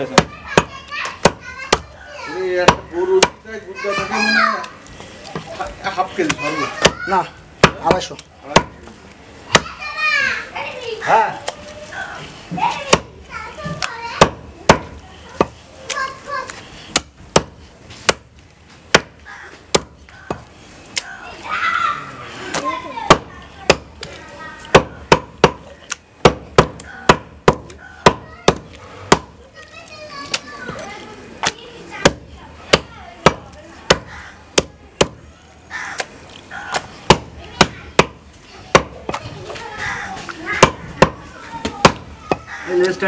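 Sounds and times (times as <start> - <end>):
cleaver chopping meat on wood: 2.6 - 3.4, 7.6 - 8.8, 16.9 - 18.2, 18.9 - 20.4, 24.7 - 29.4, 31.4 - 35.2, 36.7 - 39.2, 40.6 - 42.5.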